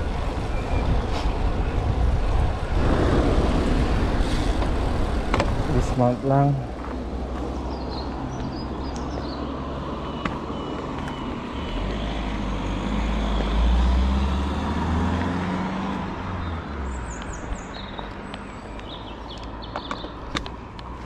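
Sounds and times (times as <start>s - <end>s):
traffic rumble: 0.0s - 21.0s
vehicle passing: 2.5s - 19.0s.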